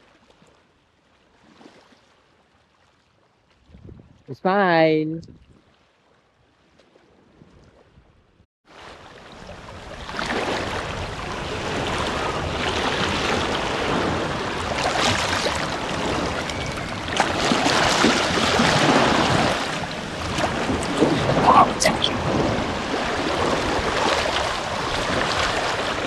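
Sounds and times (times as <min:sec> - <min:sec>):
small waves washing onto sand: 0:08.7 - 0:26.0.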